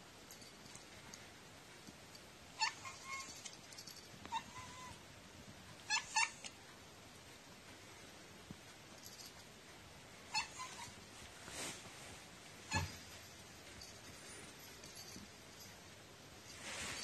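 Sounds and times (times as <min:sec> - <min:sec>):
cat meowing: 0:04.3 - 0:05.0.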